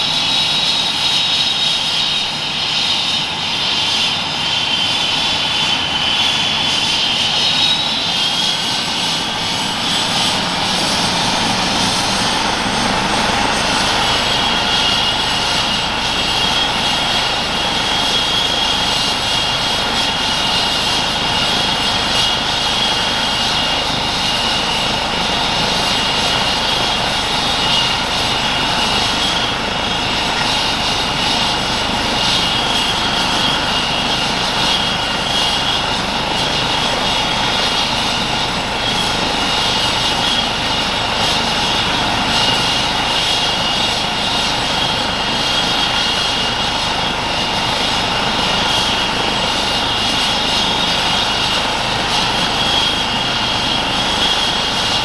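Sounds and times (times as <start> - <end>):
helicopter rotor noise: 0.0 - 55.0
turbine engine whine: 0.0 - 55.0.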